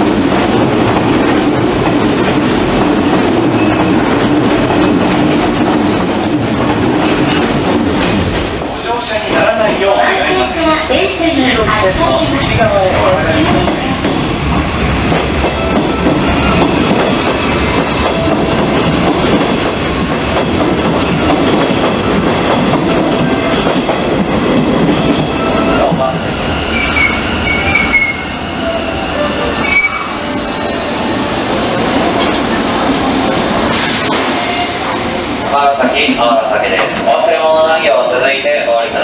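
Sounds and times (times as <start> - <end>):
train wheels clattering: 0.0 - 10.0, 12.9 - 28.3
high wheel squeals: 26.5 - 28.7, 29.5 - 30.4.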